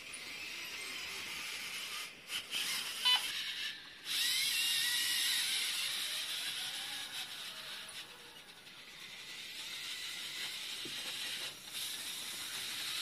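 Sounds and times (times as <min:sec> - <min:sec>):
motors and gears whirring: 0:00.0 - 0:13.0.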